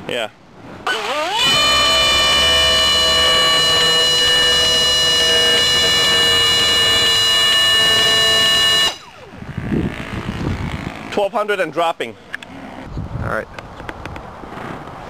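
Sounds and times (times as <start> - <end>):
electric motor and propeller whine: 0.8 - 11.2.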